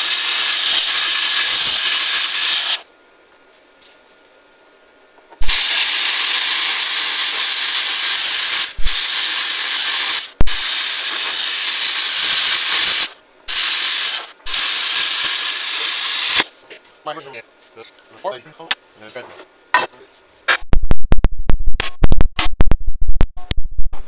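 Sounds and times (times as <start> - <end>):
plasma cutter hissing: 0.0 - 2.9, 5.4 - 16.6.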